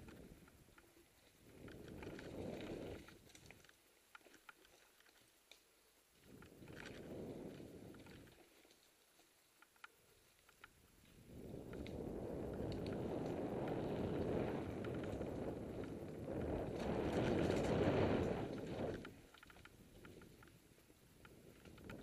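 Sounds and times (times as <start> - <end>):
bike tyres rumbling on dirt: 1.3 - 3.6, 11.1 - 22.0
wind buffeting microphone: 11.2 - 20.4.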